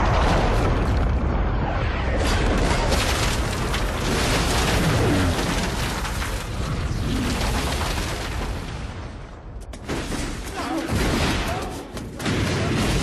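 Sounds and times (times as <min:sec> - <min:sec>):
explosion rumble: 0:00.0 - 0:09.6
crackling debris: 0:00.0 - 0:13.0.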